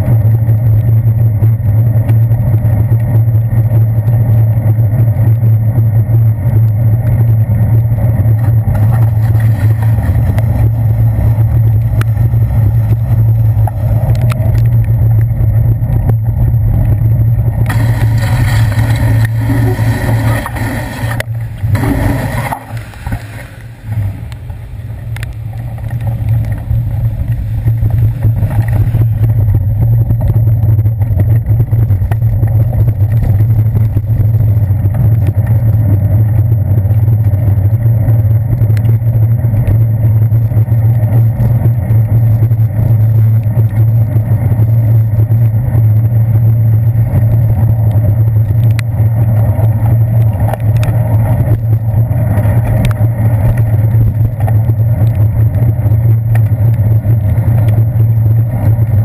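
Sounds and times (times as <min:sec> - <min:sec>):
wind and road rumble: 0:00.0 - 0:59.0
bus tyres hissing on wet road: 0:17.7 - 0:29.4.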